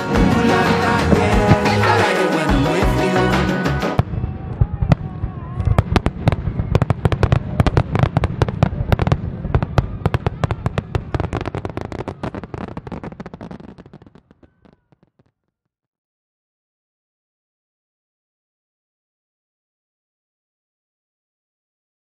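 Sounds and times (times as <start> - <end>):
low rumble: 0.0 - 2.0
fireworks crackling: 0.0 - 15.3.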